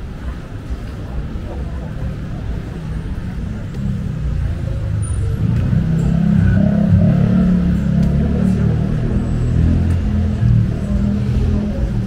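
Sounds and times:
vehicle engine rumble: 0.0 - 12.0.

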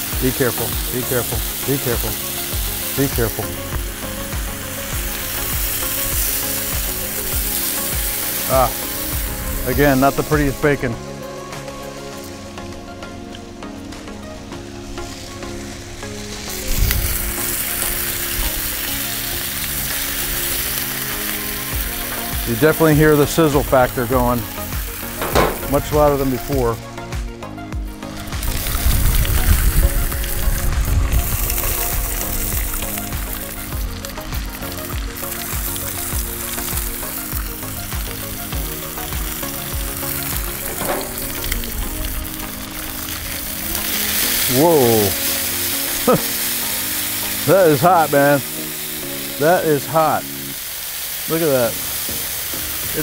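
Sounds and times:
bacon sizzling on griddle: 0.0 - 10.8, 14.8 - 26.8, 27.9 - 53.0
metal tongs on griddle: 25.1 - 26.5, 39.0 - 48.1
low thump: 25.2 - 26.0.

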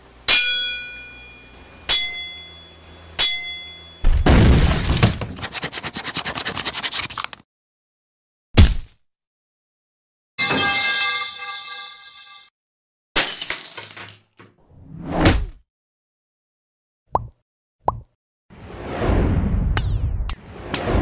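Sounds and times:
metallic clangs with ringing: 0.3 - 4.1.

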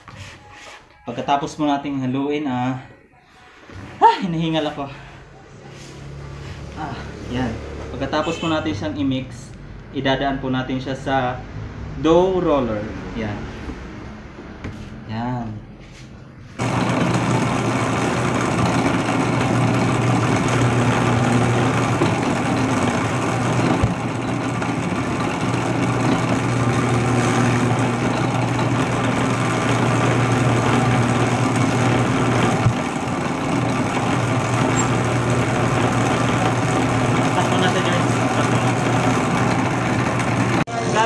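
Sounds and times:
electric dough roller humming: 16.5 - 41.0.

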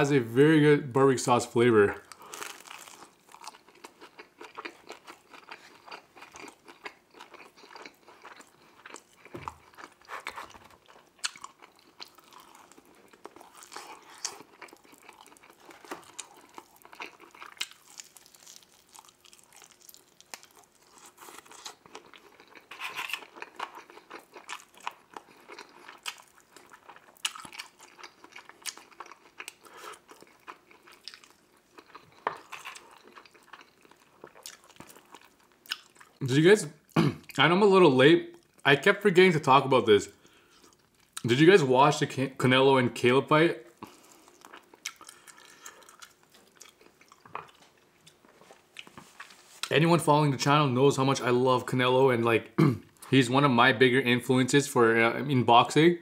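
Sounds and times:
eating crunches: 2.0 - 36.2, 43.8 - 49.7.

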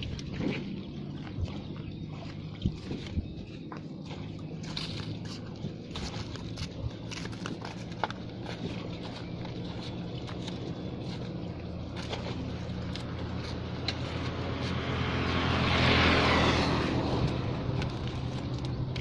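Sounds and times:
vehicle passing by: 8.2 - 19.0.

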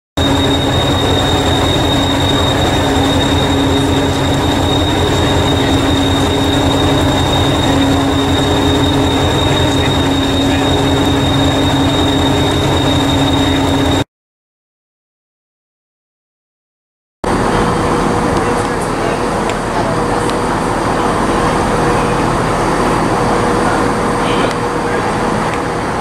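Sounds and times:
diesel train idling: 0.2 - 14.0, 17.3 - 26.0
high-pitched whine: 0.2 - 14.1.

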